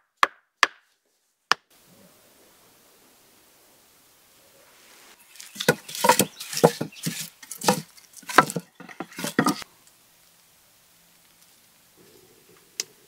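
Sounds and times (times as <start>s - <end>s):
crunching knocks: 5.3s - 9.6s.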